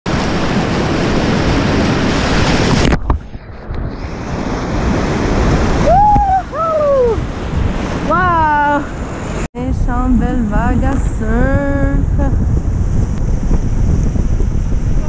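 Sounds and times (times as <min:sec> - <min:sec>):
water splashing on camera: 0:00.1 - 0:06.3
person whooping: 0:05.8 - 0:07.2.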